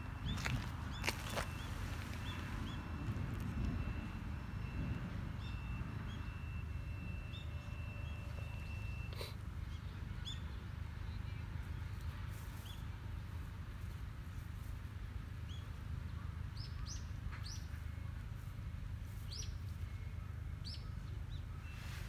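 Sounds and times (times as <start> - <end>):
small birds chirping: 0.0 - 4.0, 19.1 - 22.0.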